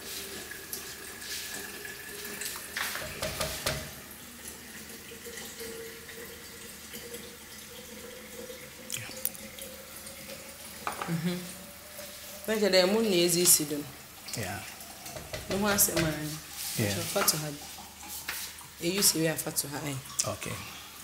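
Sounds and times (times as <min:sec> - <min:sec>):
water boiling and bubbling: 0:00.0 - 0:21.0
spatula knocking on pot: 0:03.0 - 0:04.0, 0:15.1 - 0:16.2.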